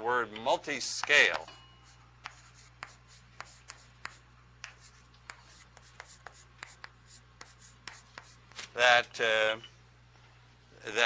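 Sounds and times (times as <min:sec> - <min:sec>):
steady low hum: 0:00.0 - 0:11.0
chalk tapping and scratching: 0:00.9 - 0:08.6.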